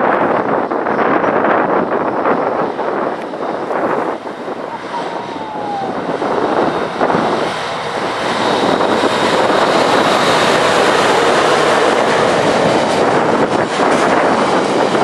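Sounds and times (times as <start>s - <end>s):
diesel locomotive passing: 0.0s - 15.0s
wind on microphone: 0.0s - 15.0s.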